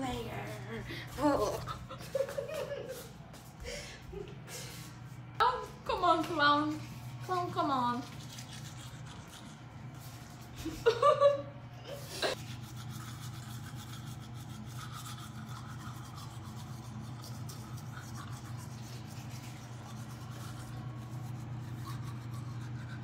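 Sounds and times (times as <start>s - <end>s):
constant low hum: 0.0s - 23.0s
toothbrush scrubbing teeth: 6.7s - 10.9s, 12.3s - 23.0s.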